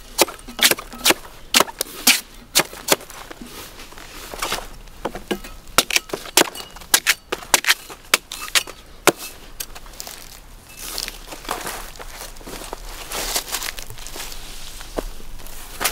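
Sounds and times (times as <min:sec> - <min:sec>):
blade chopping with cracking strikes: 0:00.1 - 0:03.2
quiet rustling: 0:09.2 - 0:15.9.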